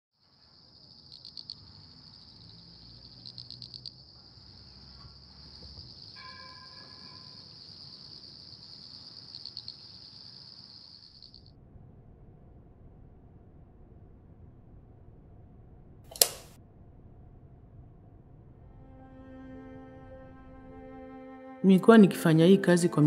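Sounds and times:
crickets trilling: 0.2 - 11.5
faint low rumble: 11.3 - 16.0, 16.6 - 19.2.

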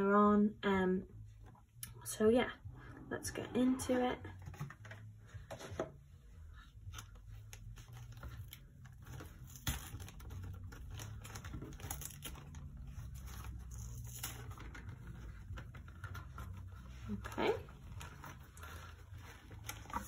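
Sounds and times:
tissue paper rustling: 6.6 - 20.0.

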